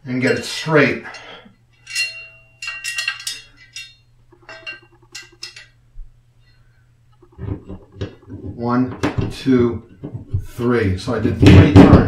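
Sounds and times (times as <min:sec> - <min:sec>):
metal hardware clinking and rattling: 0:00.1 - 0:05.8.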